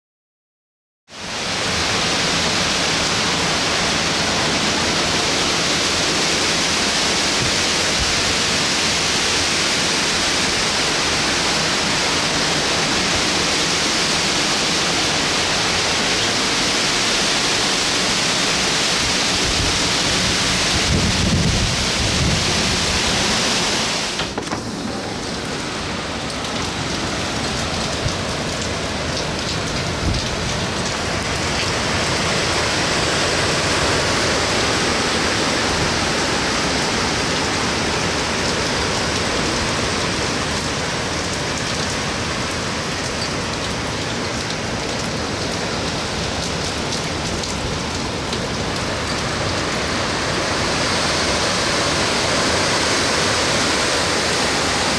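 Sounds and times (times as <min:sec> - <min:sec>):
heavy rain: 0:01.1 - 0:54.9
hurricane wind: 0:01.2 - 0:54.9.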